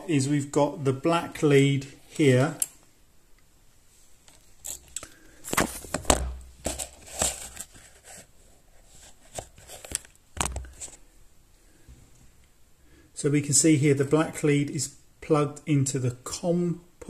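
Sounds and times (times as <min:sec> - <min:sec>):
handling clicks and rustles: 0:04.2 - 0:08.3.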